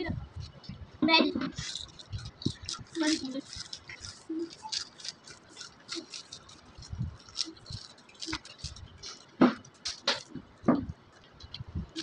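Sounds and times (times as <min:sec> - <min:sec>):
potato chips crunching: 0:01.5 - 0:10.3.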